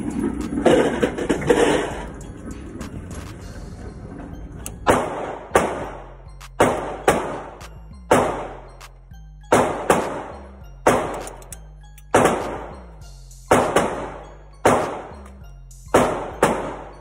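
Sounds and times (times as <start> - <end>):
background music: 0.0 - 17.0
gunshots echoing indoors: 4.9 - 6.0, 6.6 - 7.5, 8.1 - 8.5, 9.5 - 11.4, 12.1 - 12.6, 13.5 - 15.1, 15.9 - 16.9.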